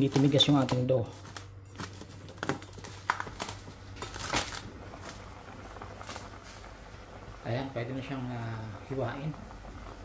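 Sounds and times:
cling wrap crinkling: 0.0 - 6.7.

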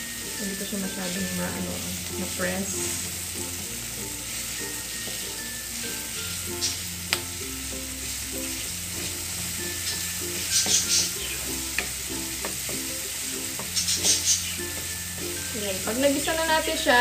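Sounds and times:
onion and tomatoes sizzling: 0.0 - 17.0
soft background music: 0.0 - 17.0
wooden spatula scraping a pan: 2.4 - 3.2, 8.4 - 12.9, 13.6 - 14.9.

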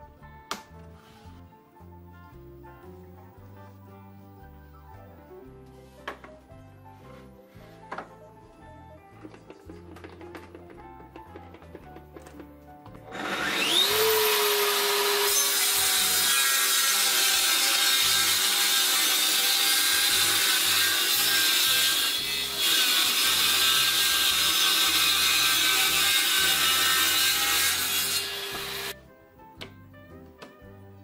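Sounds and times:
table saw motor whining: 13.1 - 28.9
saw blade ripping board: 13.1 - 29.0.

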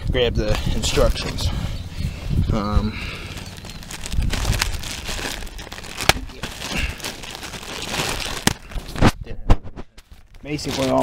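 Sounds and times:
paper packaging crinkling: 3.0 - 9.2, 10.0 - 11.0.

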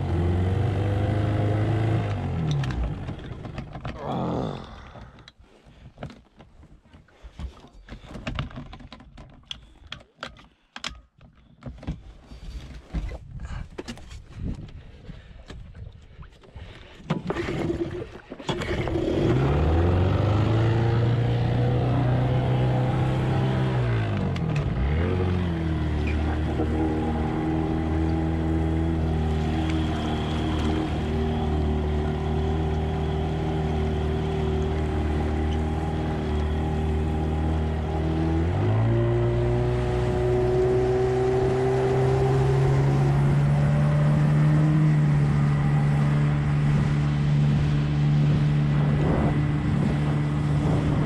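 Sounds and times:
outboard motor running: 0.0 - 5.2, 16.6 - 51.0
knocks and handling noise: 5.0 - 14.7.

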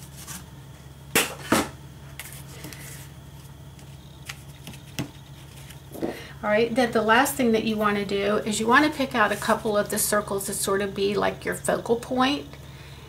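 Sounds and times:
cardstock taps and rustles: 4.2 - 6.1.

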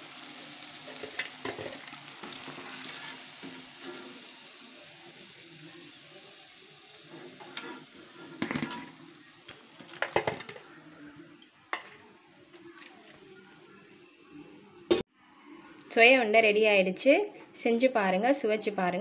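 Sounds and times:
faint sizzle of hot oil: 0.0 - 15.0.

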